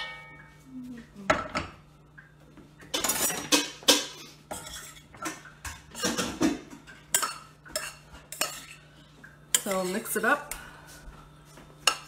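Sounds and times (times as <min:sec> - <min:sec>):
metal spoon scraping saucepan: 0:03.0 - 0:08.9.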